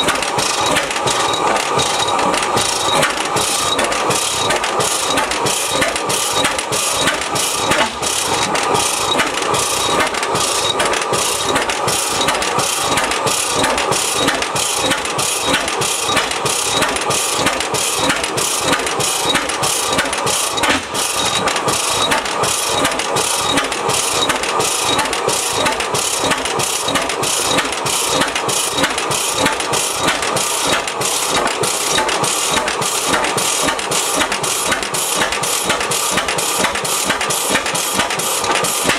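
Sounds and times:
single cylinder engine running: 0.0s - 38.9s.

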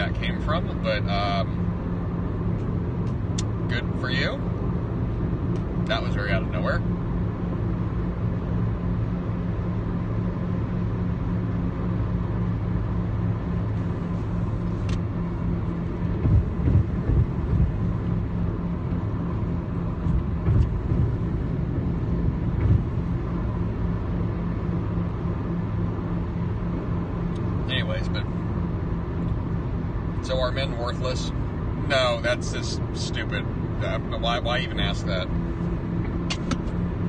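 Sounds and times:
car engine and tyres rumbling: 0.0s - 37.0s
low thumps: 14.3s - 27.6s.

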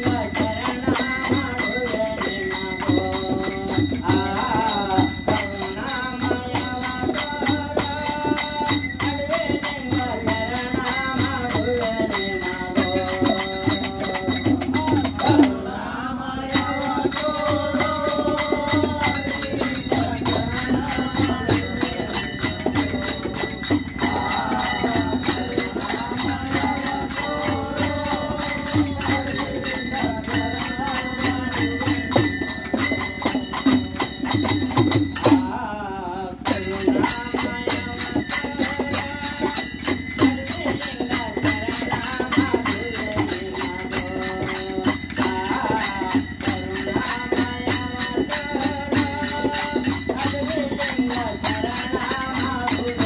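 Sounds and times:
hand cymbals clashing: 0.0s - 53.0s
men singing together: 0.0s - 53.0s.

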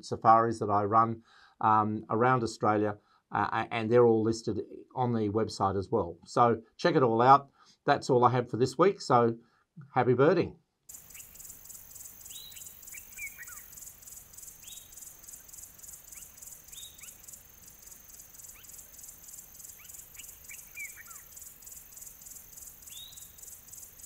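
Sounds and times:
insect chirring: 10.9s - 24.0s
bird whistled calls: 11.0s - 23.9s.

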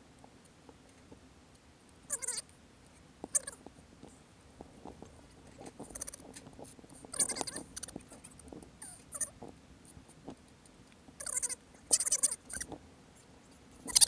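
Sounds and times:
short wavering animal calls: 2.1s - 2.5s, 3.3s - 3.6s, 7.1s - 8.0s, 8.8s - 9.4s, 11.2s - 12.7s
rustling: 2.1s - 14.0s.

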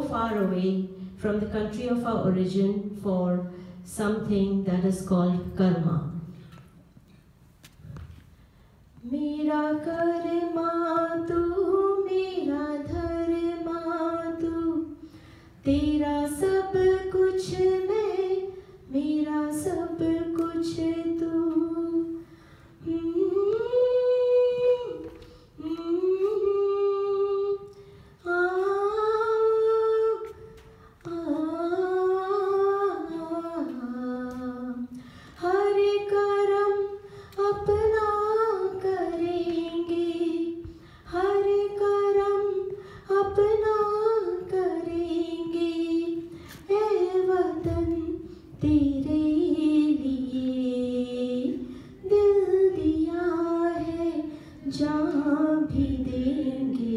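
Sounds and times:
woman singing unaccompanied: 9.0s - 15.0s, 15.6s - 56.9s
singer breathing: 15.0s - 15.6s, 22.2s - 22.8s, 34.9s - 35.4s, 37.0s - 37.4s, 40.6s - 41.1s, 42.7s - 43.1s, 51.6s - 52.0s, 54.3s - 54.7s.

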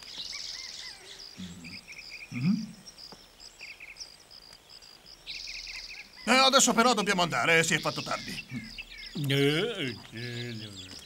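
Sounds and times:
high chirps and trills: 5.1s - 11.0s.

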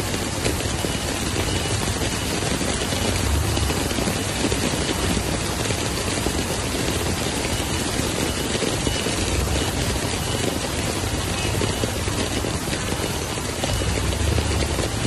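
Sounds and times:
floodwater rushing: 0.0s - 15.0s
heavy rain: 0.0s - 15.0s
low rumble: 3.1s - 4.2s.

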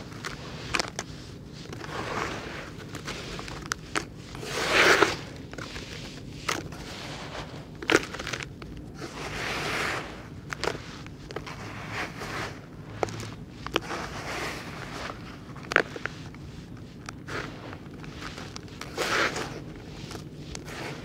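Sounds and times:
hands crumbling dry soil: 0.0s - 21.0s
clay lumps cracking: 12.7s - 21.0s.

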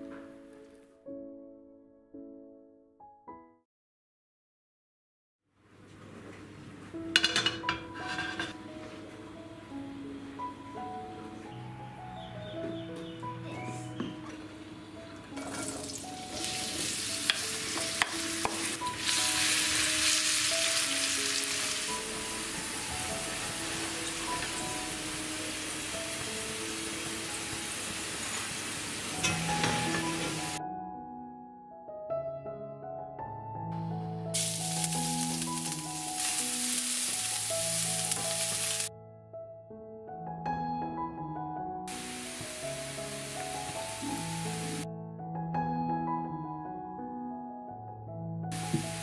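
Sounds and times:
background music: 0.0s - 3.6s, 7.0s - 49.0s
potatoes sizzling in hot oil: 15.5s - 30.6s, 34.4s - 38.9s, 41.9s - 44.8s, 48.6s - 49.0s.

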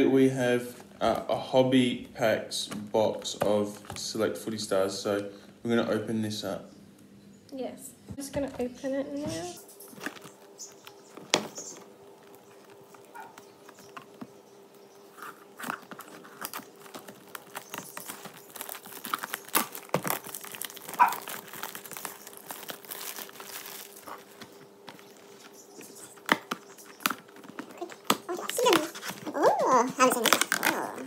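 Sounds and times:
plastic wrap crinkling and tearing: 9.8s - 14.2s, 15.1s - 31.0s.

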